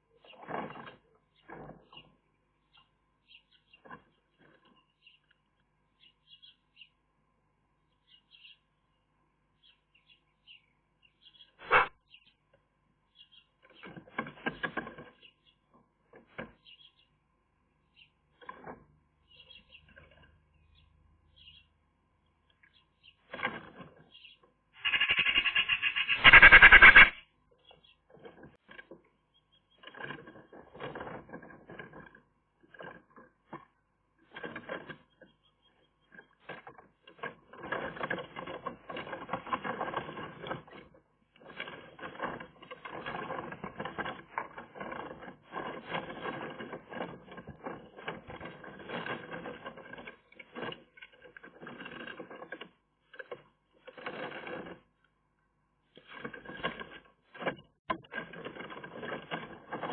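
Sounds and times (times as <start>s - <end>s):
twigs crackling and scratching: 24.8s - 27.2s.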